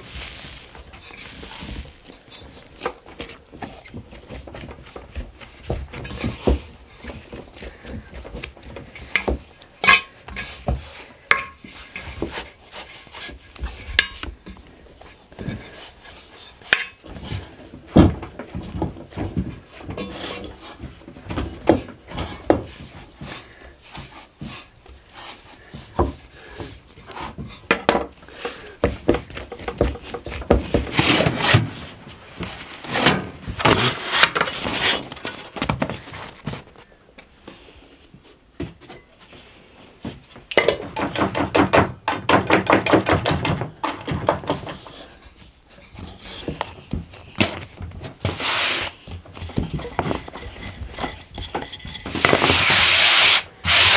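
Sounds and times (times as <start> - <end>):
dishes and utensils clinking: 40.5 - 41.0
scraping and clattering: 49.3 - 52.9.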